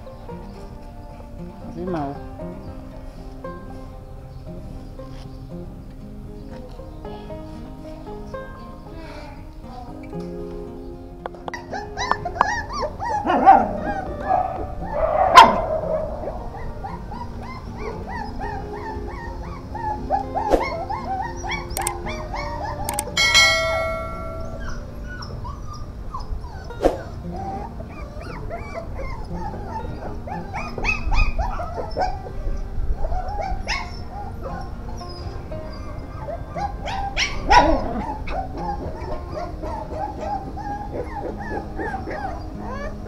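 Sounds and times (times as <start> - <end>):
faint background music: 0.0 - 43.0
puppies yipping and barking: 10.8 - 43.0
click and bell-like chime: 21.7 - 22.0, 22.9 - 24.8.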